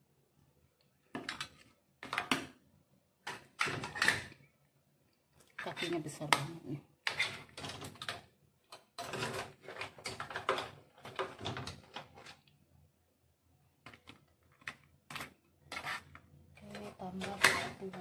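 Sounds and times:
crab shells knocking and scraping: 5.4 - 12.6, 13.8 - 18.0.

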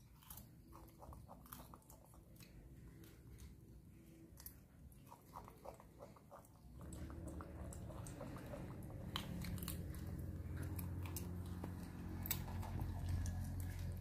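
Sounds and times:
monkeys chewing raw carrot: 0.0 - 14.0
steady low hum: 0.0 - 14.0
sharp crunches and clicks: 7.7 - 14.0.

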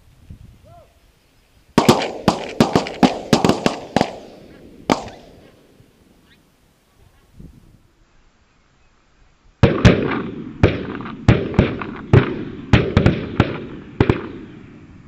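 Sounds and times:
shotgun shots: 1.8 - 5.8, 9.6 - 14.7.

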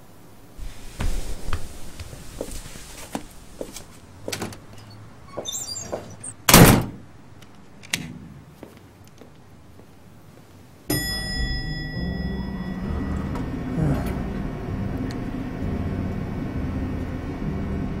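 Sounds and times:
elevator cabin hum: 0.0 - 8.6, 10.9 - 18.0
door slamming shut: 5.4 - 7.0.

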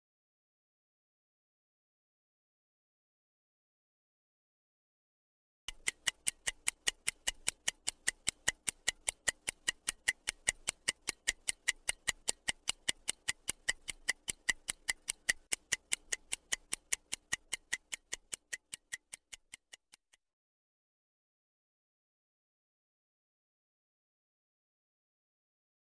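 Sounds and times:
stopwatch ticking: 5.7 - 20.2.

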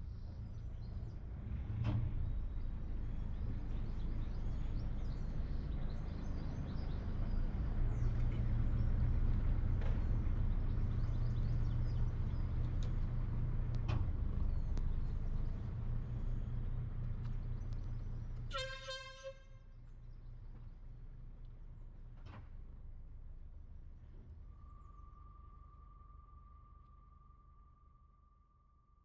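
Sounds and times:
boat engine humming: 2.3 - 21.8
horn toot: 18.5 - 19.6.

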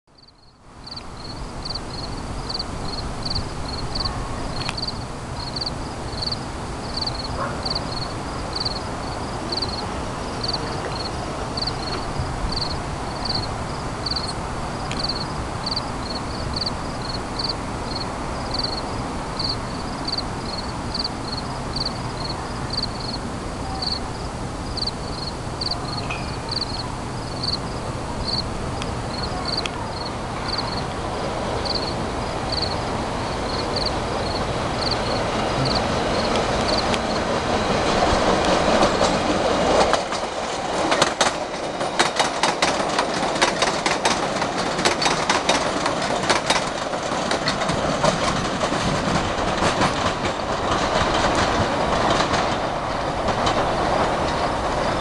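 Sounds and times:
insects chirping: 0.2 - 41.2.

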